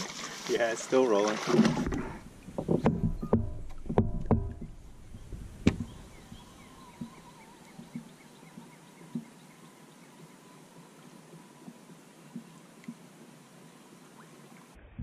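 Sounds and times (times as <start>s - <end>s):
gear knocking against kayak: 1.6s - 7.2s
faint bird calls: 5.1s - 14.7s.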